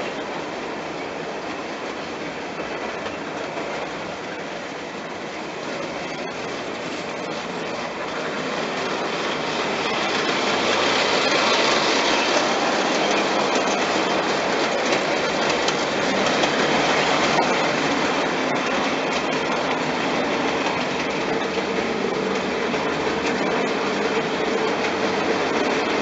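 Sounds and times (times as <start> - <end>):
model train wheels clattering: 5.8 - 26.0.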